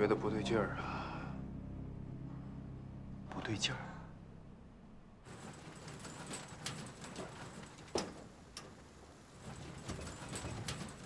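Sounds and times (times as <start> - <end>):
sharp clicks and knocks: 5.3 - 11.0.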